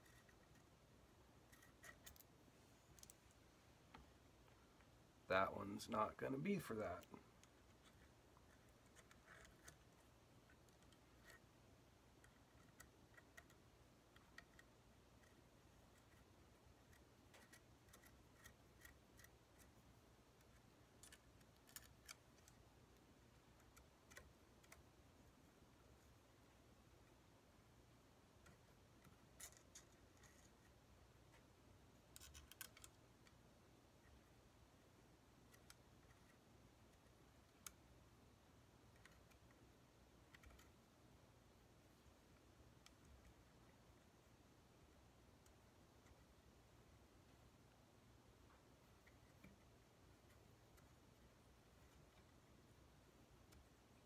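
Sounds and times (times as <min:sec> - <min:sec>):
small metallic clicks and taps: 0:02.9 - 0:04.9, 0:20.4 - 0:22.6, 0:32.1 - 0:33.4.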